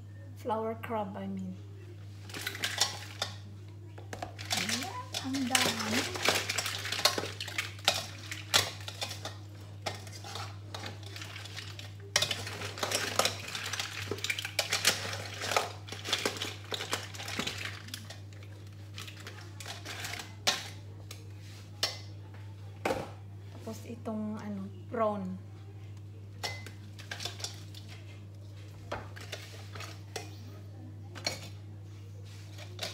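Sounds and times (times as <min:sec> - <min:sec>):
metal tongs clinking on steel pot: 0:02.3 - 0:03.4, 0:04.2 - 0:18.3, 0:26.4 - 0:27.7.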